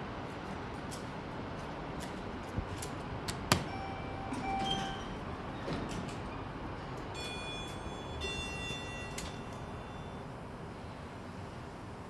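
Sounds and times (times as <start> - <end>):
elevator doors sliding open: 2.0 - 10.4.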